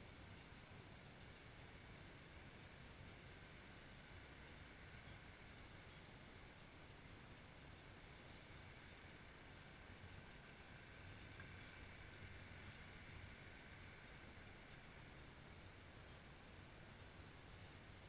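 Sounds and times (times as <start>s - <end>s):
background hiss: 0.0s - 18.0s
faint high ticks: 0.3s - 6.1s, 7.0s - 11.8s, 13.9s - 18.0s.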